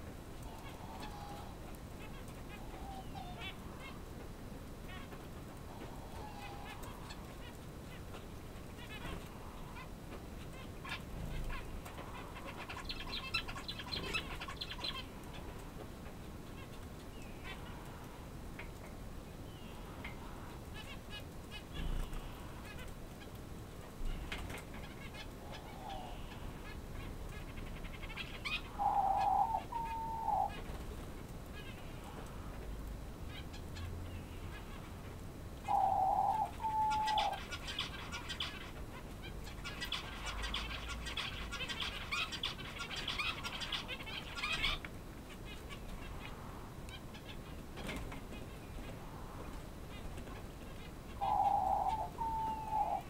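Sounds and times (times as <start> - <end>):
small birds twittering: 0.0 - 4.2, 4.8 - 53.0
quail calling: 0.5 - 4.0, 27.4 - 30.6, 35.6 - 38.8, 39.4 - 46.4, 51.1 - 53.0.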